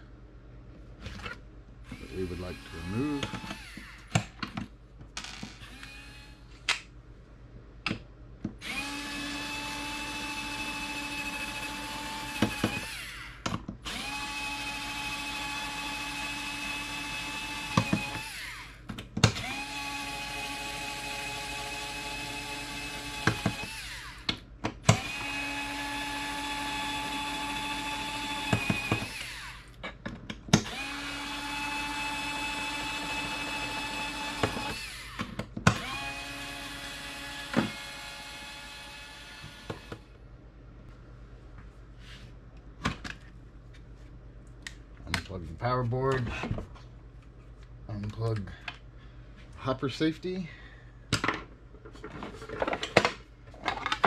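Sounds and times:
electric screwdriver motor whining: 0:01.9 - 0:04.1, 0:05.6 - 0:06.4, 0:08.6 - 0:18.7.

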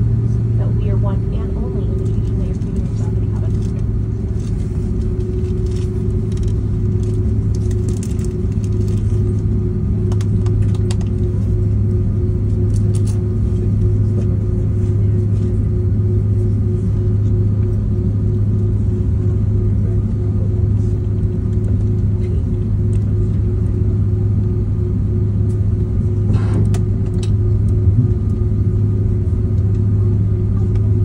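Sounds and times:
airliner cabin rumble: 0:00.0 - 0:31.0
jet engines idling: 0:00.0 - 0:31.0.

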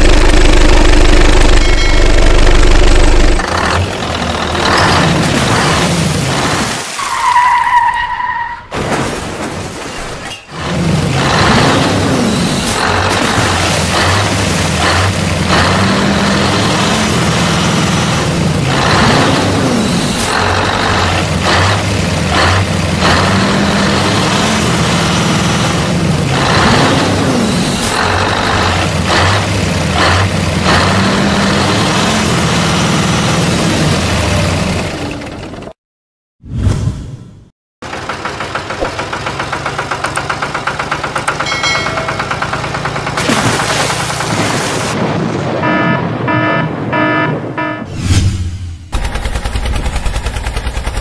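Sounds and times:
engine chugging: 0:00.0 - 0:05.1, 0:37.8 - 0:44.9, 0:48.9 - 0:51.0
truck engine droning: 0:00.0 - 0:08.5, 0:10.5 - 0:35.8, 0:37.8 - 0:47.9
short horn beeps: 0:45.6 - 0:47.9.

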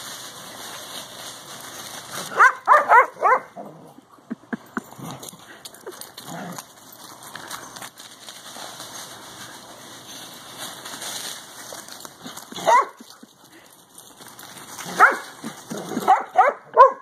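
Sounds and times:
dog barking: 0:02.3 - 0:03.6, 0:12.6 - 0:13.0, 0:14.9 - 0:15.2, 0:16.0 - 0:17.0.

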